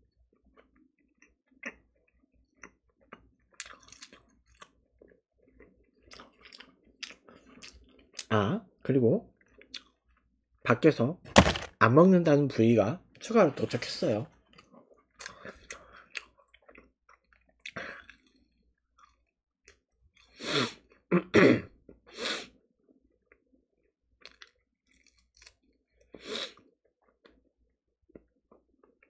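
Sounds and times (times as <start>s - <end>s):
person chewing fried chicken: 0.2s - 8.3s, 9.3s - 10.4s, 14.3s - 21.1s, 21.8s - 29.0s.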